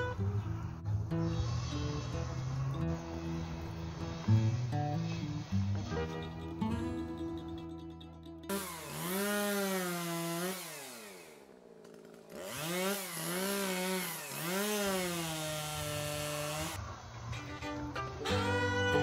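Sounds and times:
chainsaw revving: 8.5s - 16.8s.

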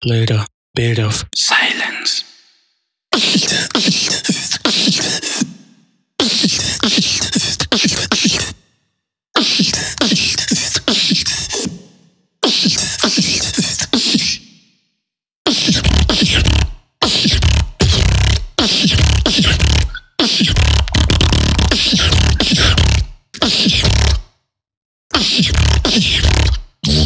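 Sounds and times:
person beatboxing: 1.4s - 2.3s, 3.1s - 5.6s, 6.2s - 8.6s, 9.4s - 14.4s, 15.5s - 24.2s, 25.1s - 27.0s.

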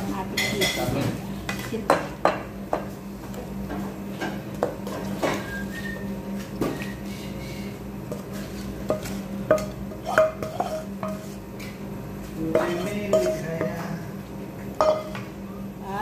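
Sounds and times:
steady low hum: 0.0s - 16.0s
wooden spatula scraping frying pan: 8.1s - 11.5s.

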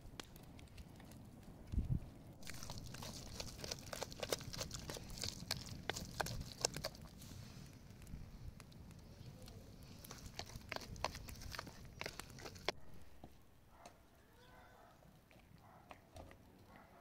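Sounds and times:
hands squelching wet mash: 2.4s - 13.1s.

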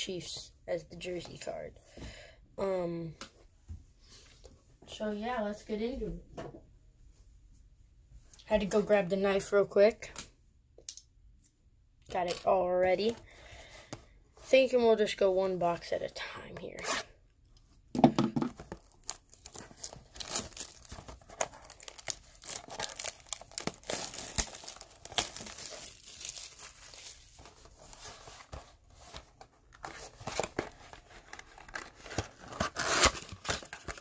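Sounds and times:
plastic wrap crinkling: 18.6s - 34.0s.

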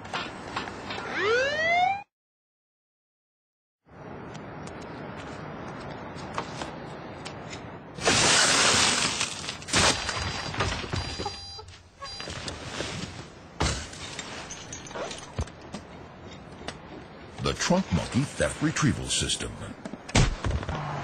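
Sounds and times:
steady background noise: 3.9s - 21.0s
car window glass smashing: 8.0s - 10.9s.

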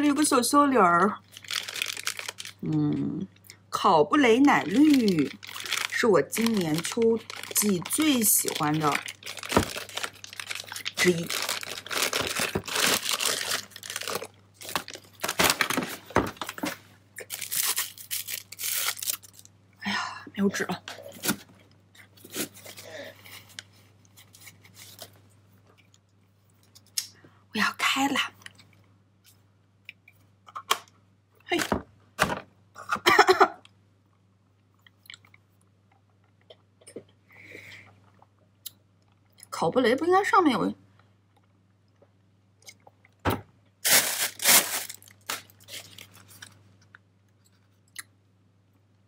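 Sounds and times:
plastic wrapper crinkling and tearing: 1.2s - 2.8s, 4.3s - 19.5s, 43.8s - 46.6s.

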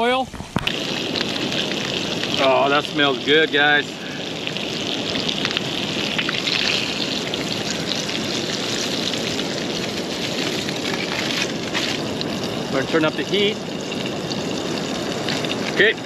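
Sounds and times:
fish sizzling in frying pan: 0.0s - 16.0s.

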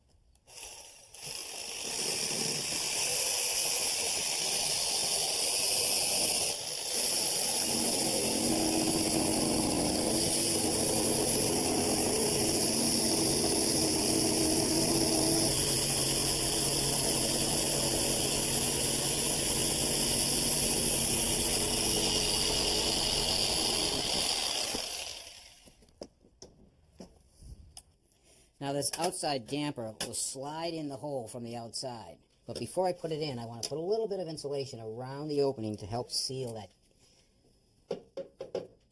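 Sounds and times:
reciprocating saw cutting: 0.4s - 25.8s.

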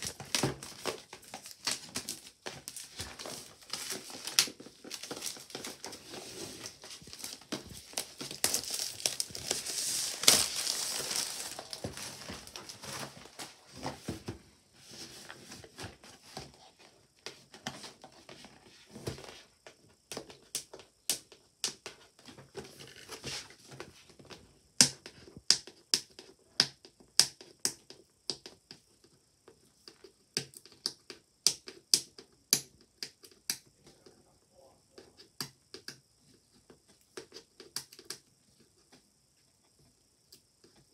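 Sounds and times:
plastic wrap crinkling: 0.0s - 13.9s.

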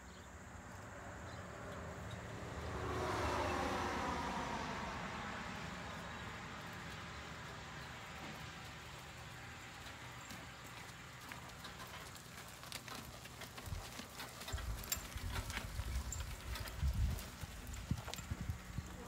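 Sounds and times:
horse hoofbeats on dirt: 5.9s - 19.0s
cart rattling: 8.1s - 19.0s.

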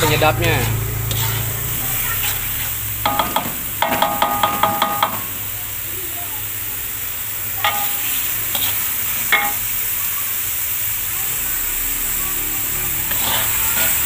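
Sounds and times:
metal spatula scraping wok: 0.0s - 5.3s, 7.6s - 9.8s, 12.6s - 14.0s
paste sizzling in oil: 0.0s - 14.0s.

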